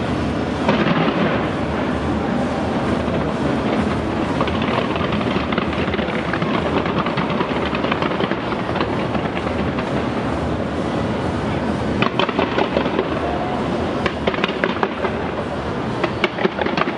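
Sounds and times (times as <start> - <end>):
fireworks crackling: 0.0 - 16.9
low rumble: 0.0 - 16.9.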